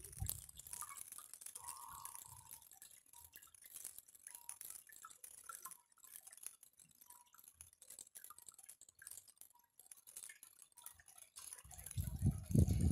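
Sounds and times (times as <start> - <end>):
water trickling and dripping: 0.0 - 12.9.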